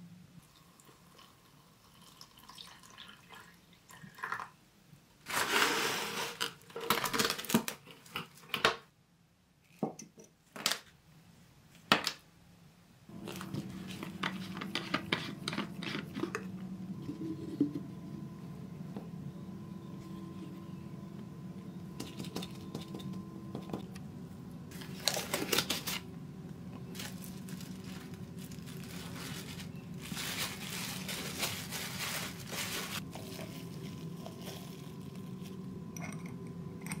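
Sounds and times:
low steady hum: 13.0 - 37.0.

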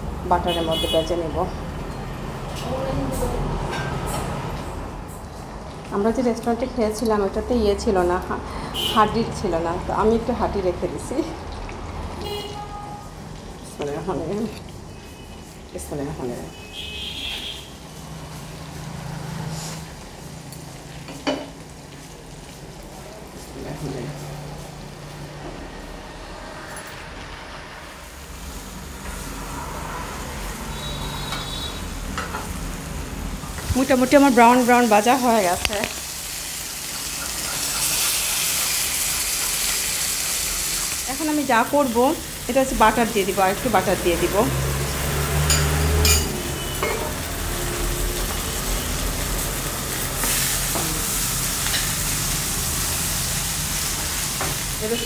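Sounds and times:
chicken sizzling in a pan: 33.8 - 55.0.

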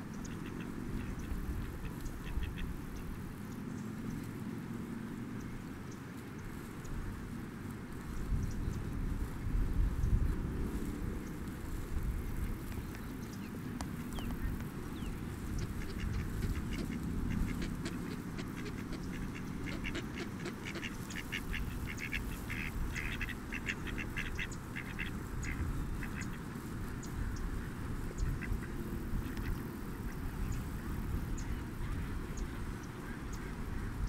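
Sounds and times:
ducks quacking: 0.2 - 2.8, 14.2 - 34.0.

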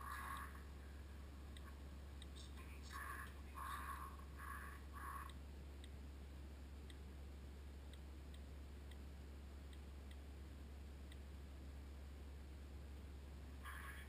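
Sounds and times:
faint irregular ticks: 0.0 - 6.0, 6.8 - 11.4
low hum: 0.0 - 14.0.

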